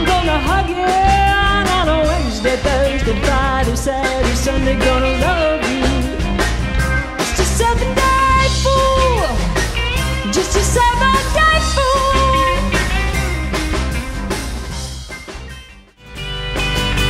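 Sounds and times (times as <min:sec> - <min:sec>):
person singing: 0:00.0 - 0:06.4, 0:10.2 - 0:12.9
drum kit: 0:00.0 - 0:17.0
guitar: 0:00.0 - 0:17.0
live rock band playing: 0:00.0 - 0:17.0.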